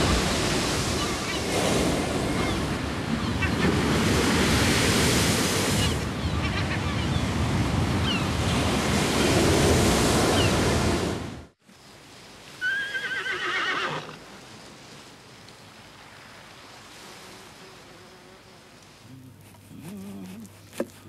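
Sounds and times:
surf breaking on rocks: 0:00.0 - 0:06.1
wind: 0:00.0 - 0:21.0
horse whinnying: 0:12.6 - 0:14.2.

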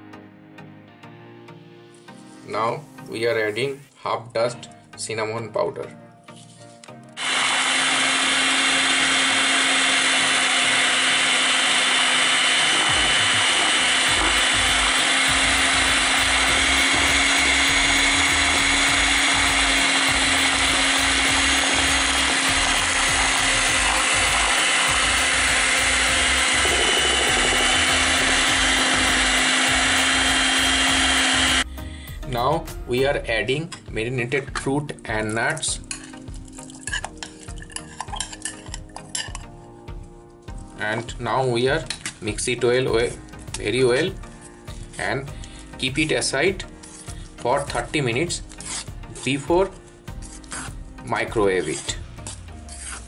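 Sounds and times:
electric hand mixer whisking batter: 0:07.2 - 0:31.7, 0:45.8 - 0:53.0.

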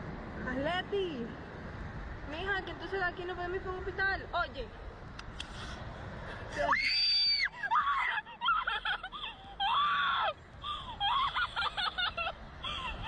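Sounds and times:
woman screaming: 0:06.6 - 0:08.8, 0:09.6 - 0:10.4.

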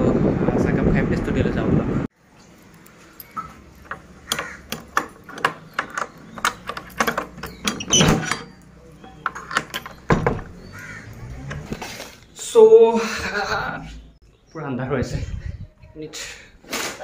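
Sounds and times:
keys and lock clinking: 0:02.4 - 0:10.6
key unlocking padlock: 0:02.6 - 0:10.2
iron hasp and bolt rattling: 0:02.6 - 0:11.8.

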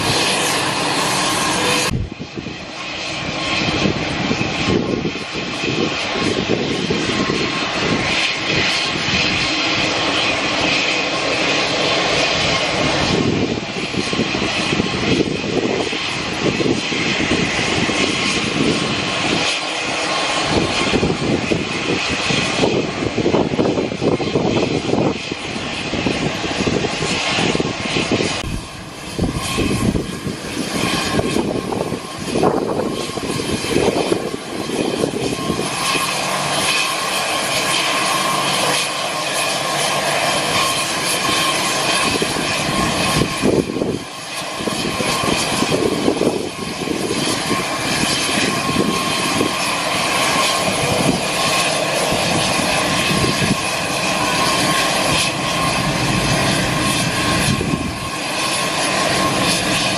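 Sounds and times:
aircraft engines running: 0:00.0 - 0:59.9
high whine: 0:28.1 - 0:34.4.

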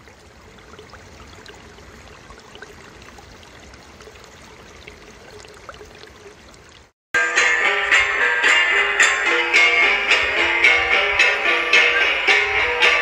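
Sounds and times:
small splashes: 0:00.0 - 0:06.9
spring water bubbling: 0:00.0 - 0:06.9.

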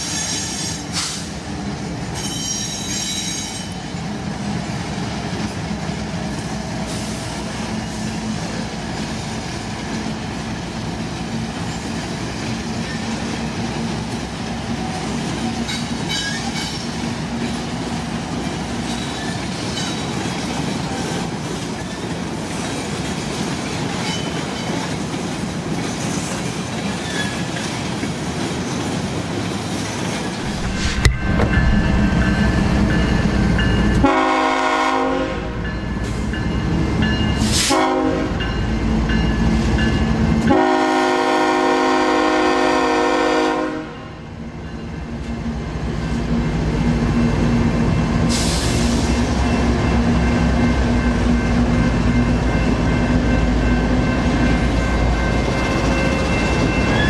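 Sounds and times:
freight train rolling past: 0:00.0 - 0:57.0
locomotive air horn chord: 0:34.0 - 0:35.6, 0:37.6 - 0:38.4, 0:40.5 - 0:44.1.

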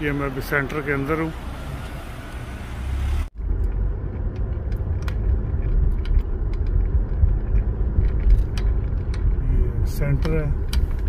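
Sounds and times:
car engine and road noise: 0:00.0 - 0:11.0.

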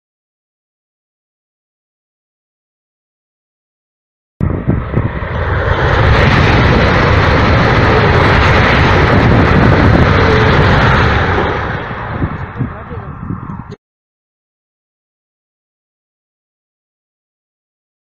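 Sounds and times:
high-speed train passing: 0:04.4 - 0:13.8.

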